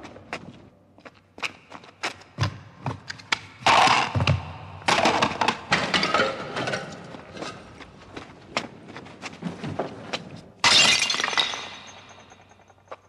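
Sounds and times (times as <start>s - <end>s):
objects knocking and clattering: 4.1s - 7.8s
pottery crashing: 10.6s - 12.8s.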